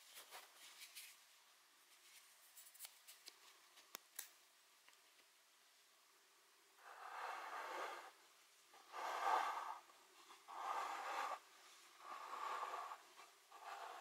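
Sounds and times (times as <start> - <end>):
person breathing: 10.5 - 14.0.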